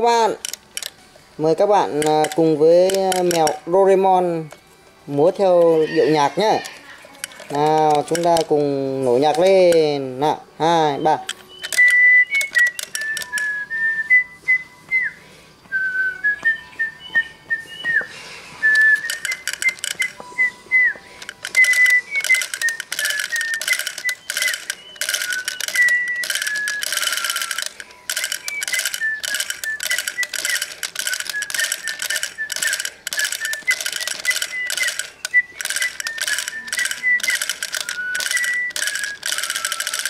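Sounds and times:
plastic arms clicking on drum: 1.6 - 3.6, 5.2 - 10.0, 11.2 - 13.5, 18.7 - 20.2, 21.2 - 40.0.

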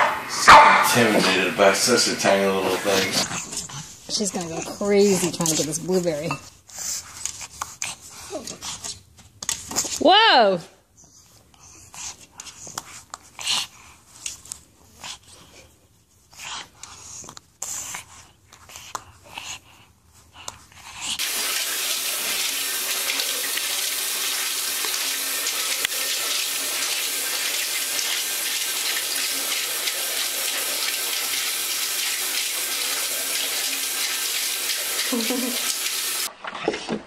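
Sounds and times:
bidet water jet hissing: 21.2 - 36.3.

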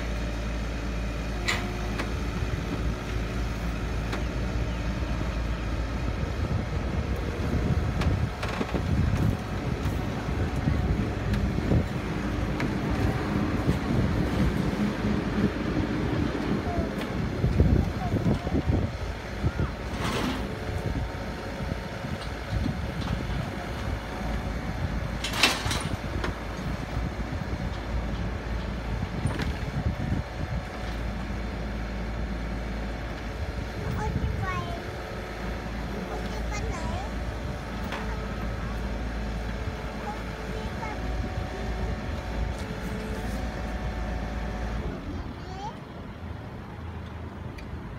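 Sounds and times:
excavator diesel engine under load: 0.0 - 47.9
hydraulic boom working: 7.4 - 31.3.

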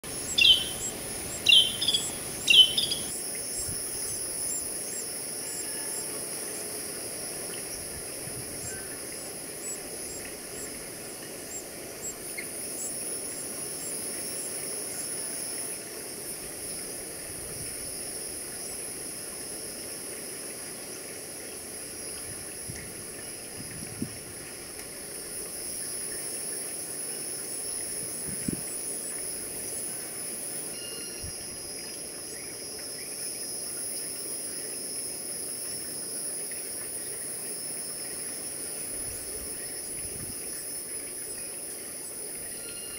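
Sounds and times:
wren singing: 0.0 - 4.2
insect chorus: 0.0 - 42.9.

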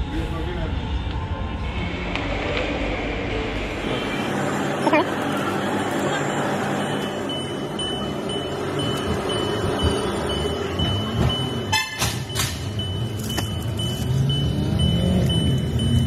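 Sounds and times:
car driving: 0.0 - 16.0
electronic beeping: 5.7 - 16.0
car horn toot: 11.5 - 12.6.

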